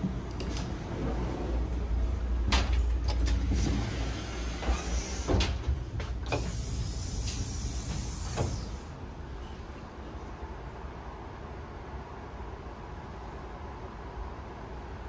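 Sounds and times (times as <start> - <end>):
sliding door opening: 0.0 - 9.6
train rumble: 0.0 - 15.0.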